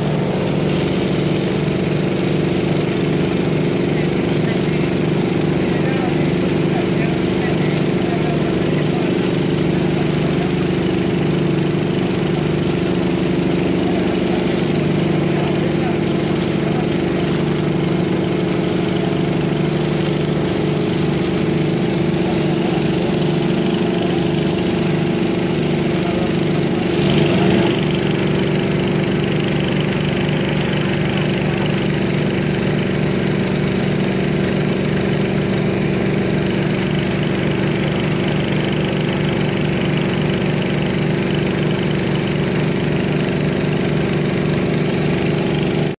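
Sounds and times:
engine running steadily: 0:00.0 - 0:46.0.

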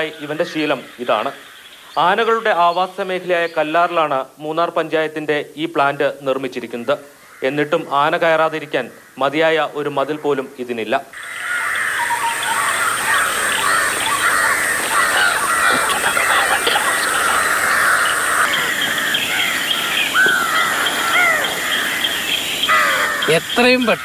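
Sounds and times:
flock of birds chattering: 0:00.0 - 0:04.2, 0:11.2 - 0:24.0
clear bird calls: 0:11.2 - 0:24.0.

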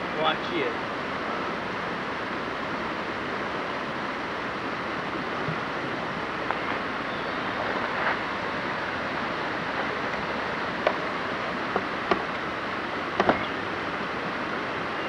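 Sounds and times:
creek rushing over rocks: 0:00.0 - 0:15.0.

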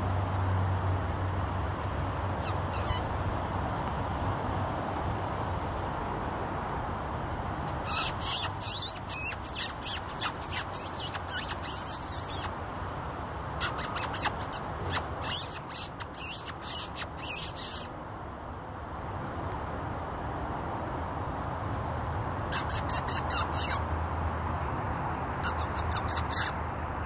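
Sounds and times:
high-pitched squeaks: 0:02.1 - 0:03.0, 0:07.7 - 0:12.5, 0:13.6 - 0:17.9, 0:22.5 - 0:23.8, 0:25.4 - 0:26.6.

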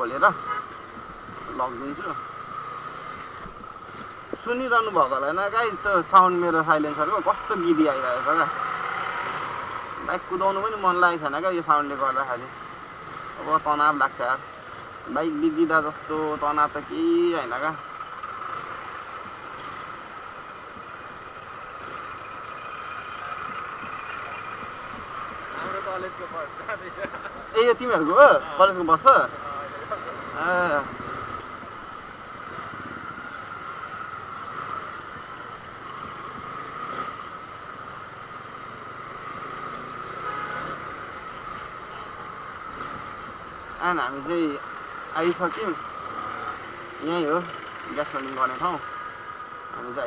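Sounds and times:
traffic: 0:00.0 - 0:50.0
motorcycle running slowly: 0:05.2 - 0:10.6, 0:17.0 - 0:40.3, 0:44.3 - 0:49.9.

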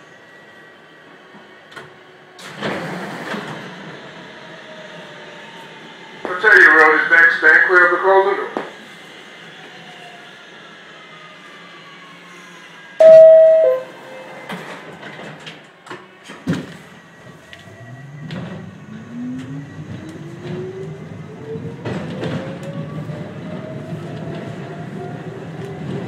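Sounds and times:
subway train horn blast: 0:13.0 - 0:14.0
traction motors rising whine: 0:17.0 - 0:25.8.

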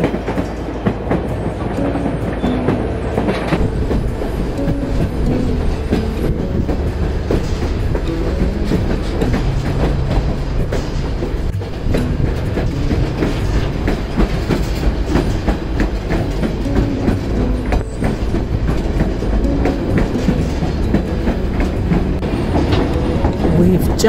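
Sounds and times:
train cars rumbling: 0:00.0 - 0:24.0
wheels clacking over rail joints: 0:00.0 - 0:24.0.

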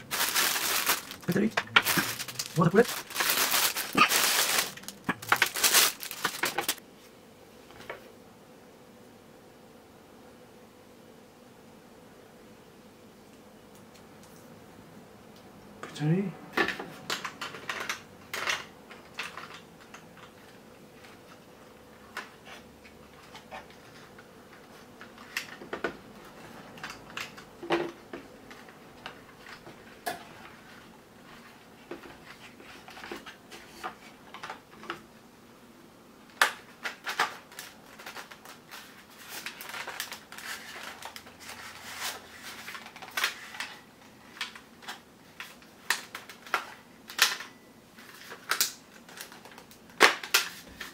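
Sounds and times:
plastic toy parts clicking and rattling: 0:00.1 - 0:06.8, 0:36.4 - 0:50.9.

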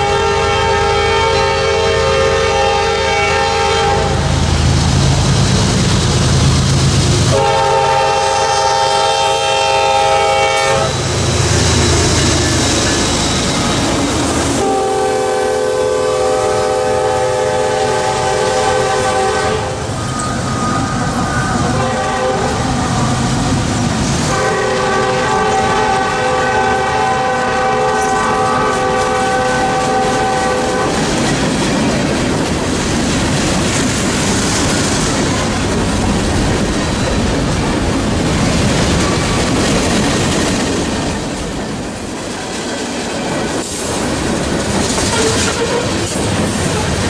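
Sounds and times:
locomotive horn blast: 0:00.0 - 0:04.4, 0:07.3 - 0:11.1, 0:14.5 - 0:23.2, 0:24.2 - 0:31.1, 0:45.0 - 0:47.0
diesel locomotive rumble: 0:00.0 - 0:47.0
train wheels clickety-clack: 0:10.1 - 0:15.7, 0:19.9 - 0:47.0.

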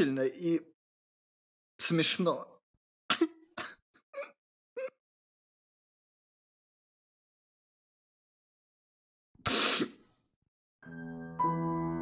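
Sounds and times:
fuller louder chord: 0:10.8 - 0:12.0
soft ambient film music: 0:10.8 - 0:12.0.

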